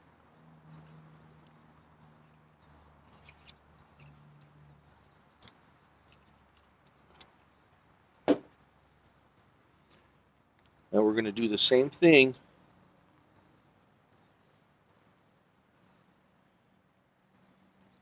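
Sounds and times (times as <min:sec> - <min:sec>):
faint birds chirping: 0:00.0 - 0:18.0
fishing line clicks: 0:03.0 - 0:04.2, 0:05.3 - 0:07.4
sharp knock: 0:08.3 - 0:08.5.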